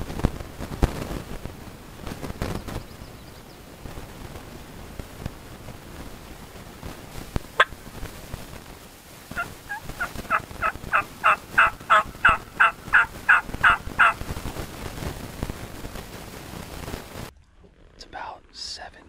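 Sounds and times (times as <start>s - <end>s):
turkey yelps: 9.4s - 14.2s.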